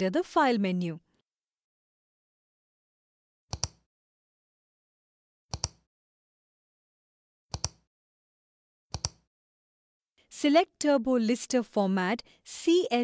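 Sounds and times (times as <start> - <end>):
computer mouse clicking: 3.5 - 3.9, 5.5 - 5.9, 7.5 - 7.9, 8.9 - 9.3.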